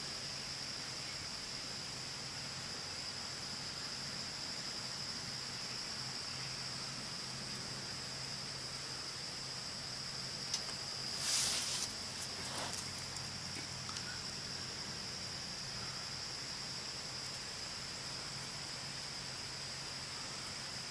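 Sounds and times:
high-pitched insect chorus: 0:00.0 - 0:20.9
brief rustle: 0:10.5 - 0:13.2.

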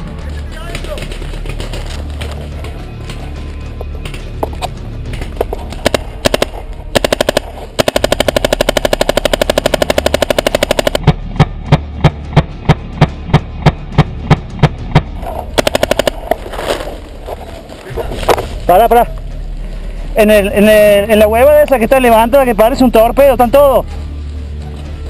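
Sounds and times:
paintball marker firing: 0:05.4 - 0:16.9.

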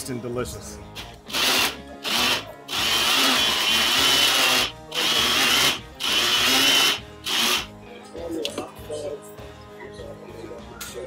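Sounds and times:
blender motor grinding in pulses: 0:01.3 - 0:07.7.

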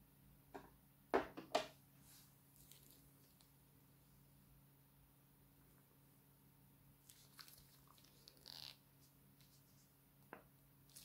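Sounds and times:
plastic piping bag crinkling: 0:02.5 - 0:03.6, 0:07.0 - 0:08.8.

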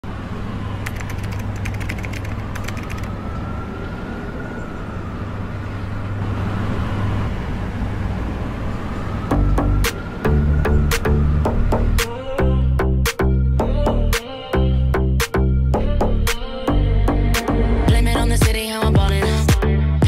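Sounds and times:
quick typing clicks: 0:00.8 - 0:03.1.

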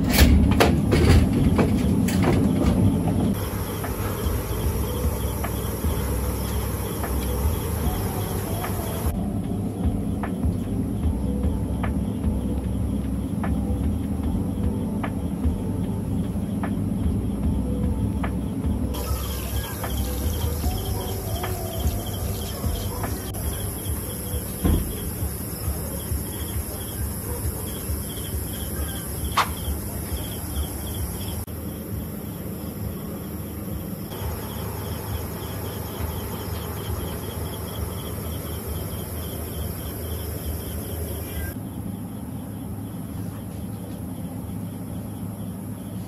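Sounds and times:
low rumble: 0:00.0 - 0:33.1
insects chirping: 0:00.0 - 0:46.0
sharp knocks: 0:24.6 - 0:25.3.

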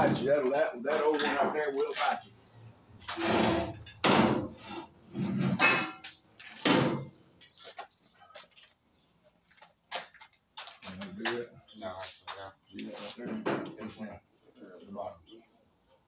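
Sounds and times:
metal pipe scraping and clunking: 0:03.0 - 0:07.1.

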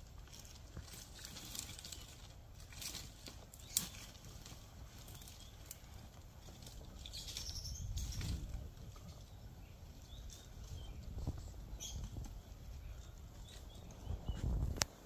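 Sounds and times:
bird chirps: 0:07.0 - 0:08.4, 0:09.1 - 0:14.6.

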